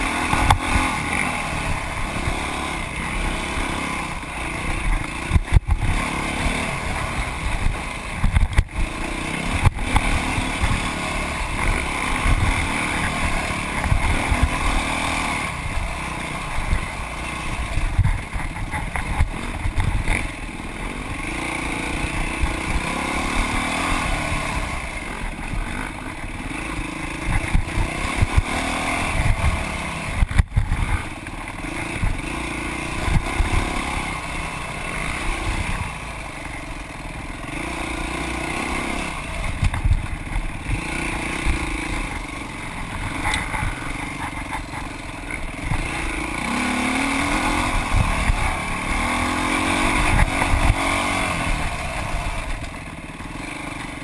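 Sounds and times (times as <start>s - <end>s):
dirt bike engine revving: 0.0s - 54.0s
thumps and clatter: 7.5s - 8.9s, 17.8s - 20.3s, 27.2s - 28.4s, 30.2s - 32.2s, 39.5s - 40.8s.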